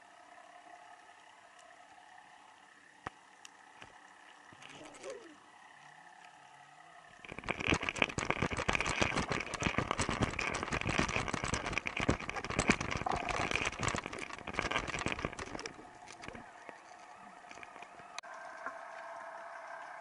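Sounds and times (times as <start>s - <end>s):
underwater clicking and crackling: 2.7s - 5.4s, 7.1s - 20.0s.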